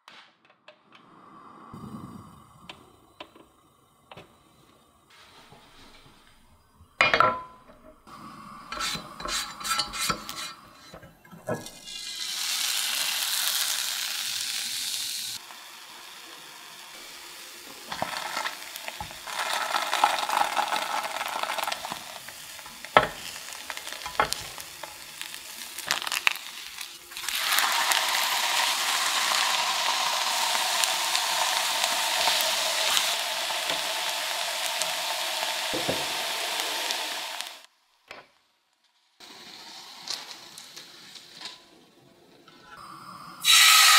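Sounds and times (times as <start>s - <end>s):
batter sizzling in a frying pan: 8.0s - 37.7s, 39.2s - 41.6s, 43.4s - 43.9s.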